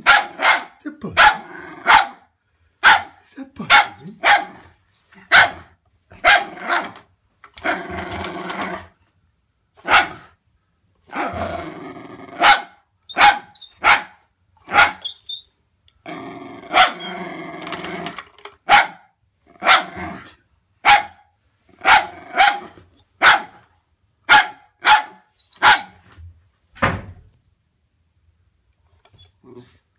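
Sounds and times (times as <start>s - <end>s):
dog barking: 0.0s - 7.0s, 9.8s - 10.3s, 12.4s - 15.0s, 16.7s - 17.1s, 18.6s - 20.0s, 20.8s - 23.6s, 24.3s - 26.0s
dog growling: 7.6s - 9.0s, 11.1s - 12.5s, 16.0s - 18.2s.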